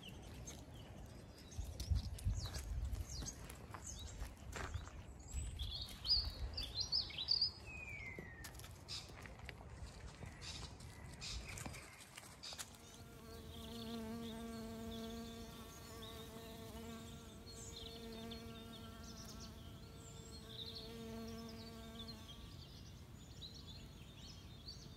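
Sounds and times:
small birds chirping: 0:00.0 - 0:24.9
flying insect buzzing: 0:12.8 - 0:22.8.

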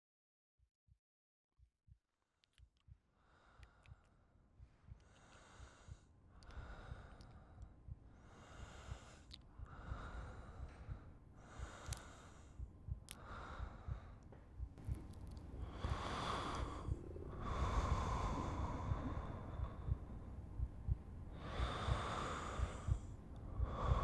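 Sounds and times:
heavy human breathing: 0:03.2 - 0:24.0
low crackle: 0:13.0 - 0:24.0.

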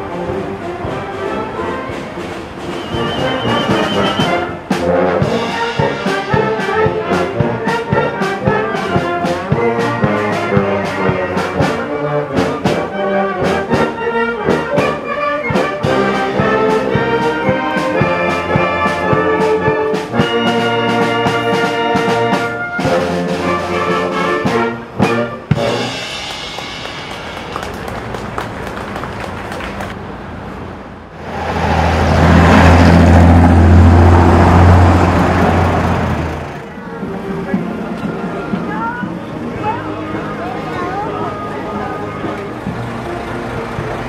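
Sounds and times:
brass band playing: 0:00.0 - 0:30.0, 0:31.2 - 0:44.0
steady drum beat: 0:01.9 - 0:29.2
tuba bass line: 0:02.9 - 0:26.3.

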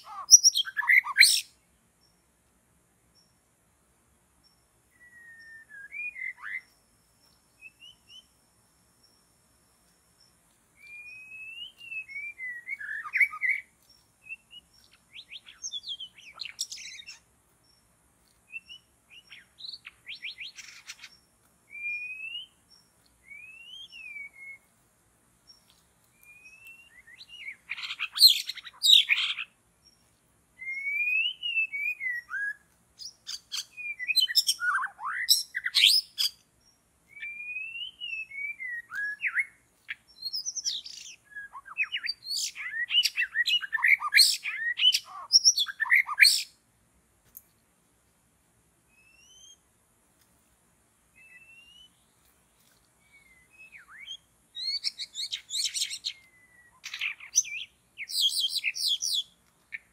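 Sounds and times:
songbird singing whistled phrases: 0:00.0 - 0:01.6, 0:04.9 - 0:08.4, 0:10.8 - 0:17.3, 0:18.5 - 0:24.7, 0:25.5 - 0:29.6, 0:30.6 - 0:36.5, 0:37.1 - 0:46.6, 0:48.9 - 0:49.6, 0:51.1 - 0:52.1, 0:53.0 - 0:59.9.

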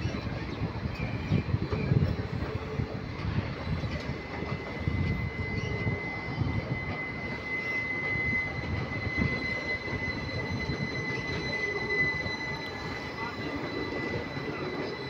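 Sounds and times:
high-pitched wheel squeal: 0:00.0 - 0:15.0
train coaches rumbling: 0:00.0 - 0:15.0.

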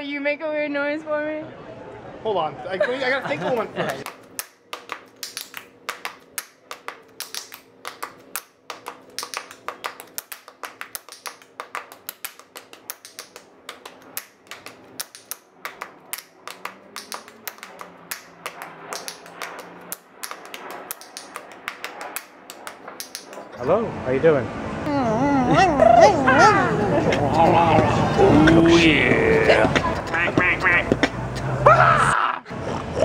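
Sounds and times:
tap shoes on hard floor: 0:29.7 - 0:31.5.

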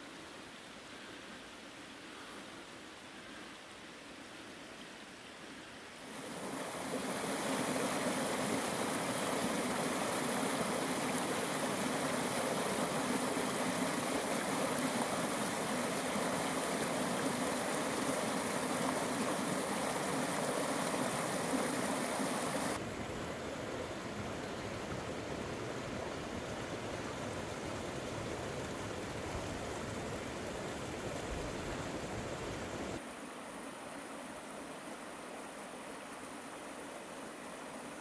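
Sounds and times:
stream rushing over rocks: 0:06.0 - 0:38.0.

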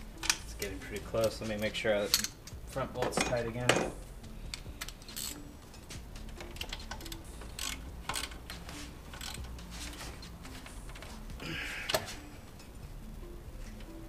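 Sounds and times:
quiet background music: 0:00.0 - 0:14.0
socket ratchet clicking: 0:04.5 - 0:05.5, 0:06.2 - 0:09.6.

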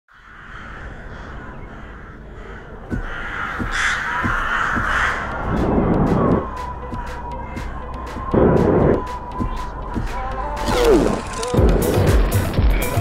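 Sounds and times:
crows cawing: 0:00.1 - 0:08.0
rushing whoosh: 0:04.8 - 0:07.2, 0:08.1 - 0:09.6.

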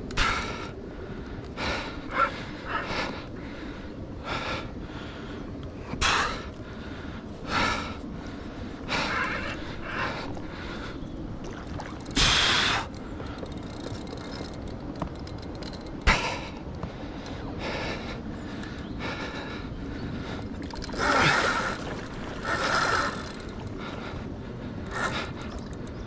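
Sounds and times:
person breathing heavily: 0:16.0 - 0:25.9.

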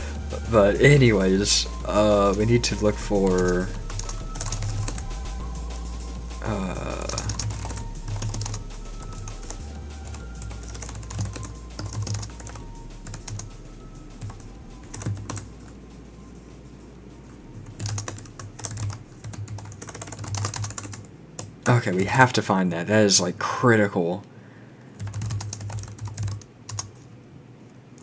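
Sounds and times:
music with pulsing low beat: 0:00.0 - 0:21.1
typing on keyboard: 0:03.3 - 0:05.1, 0:06.5 - 0:13.5, 0:14.2 - 0:15.8, 0:17.7 - 0:22.2, 0:25.0 - 0:27.1.

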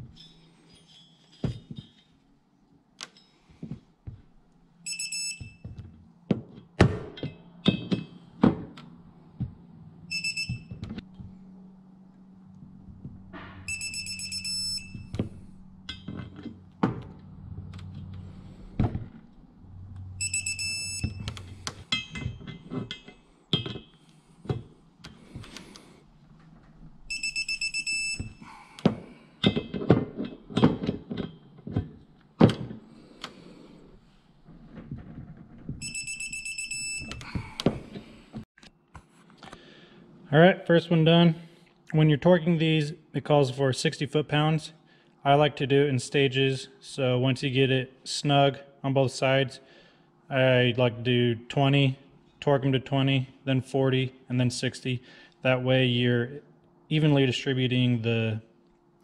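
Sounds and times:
torque wrench beeping: 0:04.8 - 0:05.8, 0:10.1 - 0:10.8, 0:13.6 - 0:15.3, 0:20.2 - 0:23.1, 0:27.1 - 0:29.6, 0:35.8 - 0:37.5
metal knocks: 0:05.7 - 0:09.6, 0:12.7 - 0:13.8, 0:21.2 - 0:24.7.

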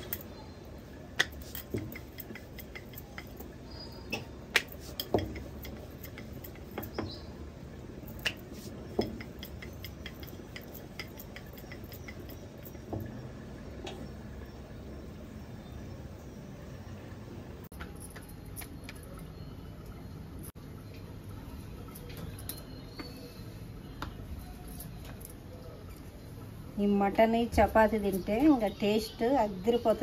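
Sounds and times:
kitchen utensils knocking: 0:04.1 - 0:07.2, 0:08.8 - 0:13.2.

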